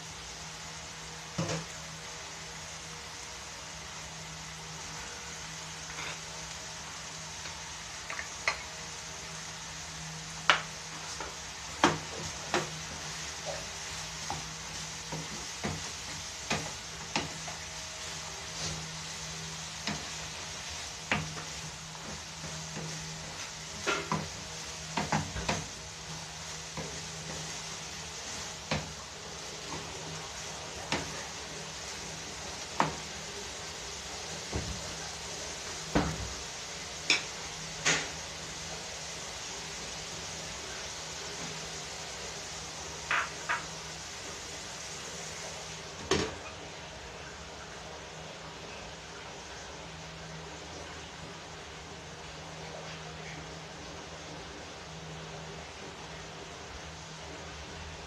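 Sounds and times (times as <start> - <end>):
food sizzling in frying pan: 0.0 - 58.0
spatula knocking and scraping pan: 10.4 - 17.6.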